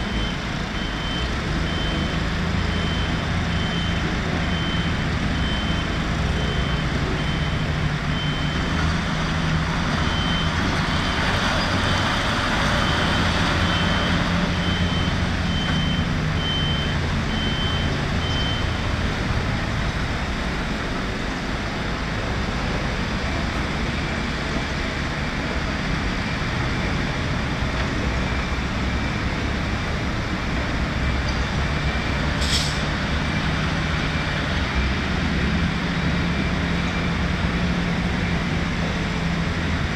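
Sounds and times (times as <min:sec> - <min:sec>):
reversing alarm beeping: 0:00.0 - 0:19.1
diesel machinery running: 0:00.0 - 0:39.9.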